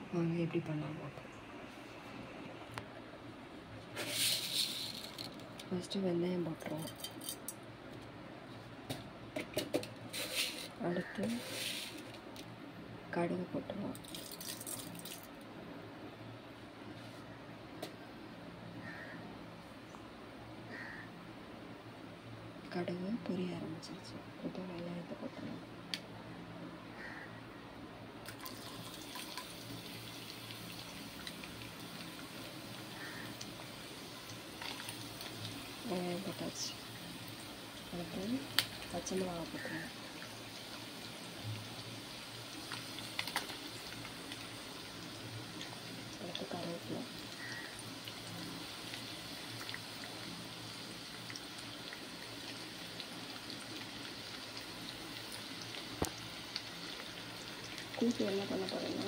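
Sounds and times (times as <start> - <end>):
onions frying in hot oil: 10.1 - 12.4, 28.2 - 59.0
oil popping and crackling: 13.9 - 15.3, 28.2 - 59.0
small crackles: 30.4 - 36.0, 37.3 - 40.9, 41.5 - 44.8.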